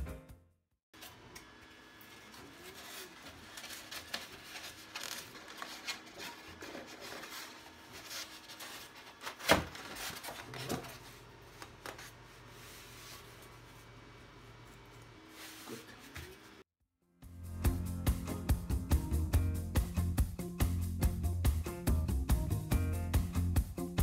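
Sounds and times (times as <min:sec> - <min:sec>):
foam sheets rubbing and scraping: 0:02.3 - 0:16.6.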